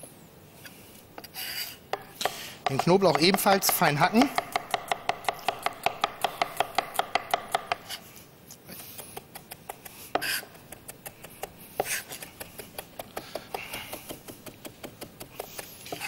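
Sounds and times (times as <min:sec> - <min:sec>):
knife chopping on wooden board: 0:01.9 - 0:08.0, 0:09.7 - 0:16.0.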